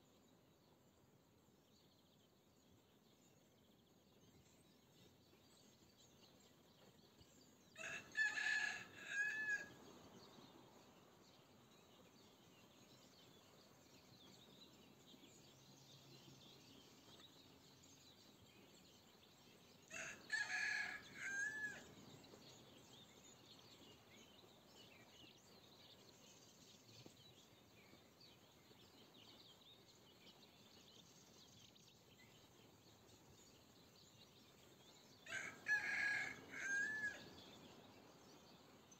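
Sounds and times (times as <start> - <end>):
rooster crowing: 7.8 - 9.7, 19.9 - 21.8, 35.3 - 37.2.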